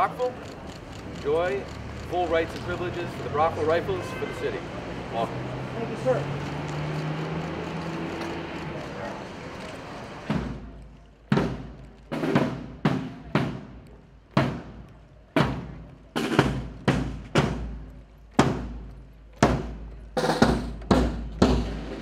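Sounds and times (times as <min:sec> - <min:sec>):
snare drums: 0:10.2 - 0:22.0
bass drum: 0:15.4 - 0:22.0.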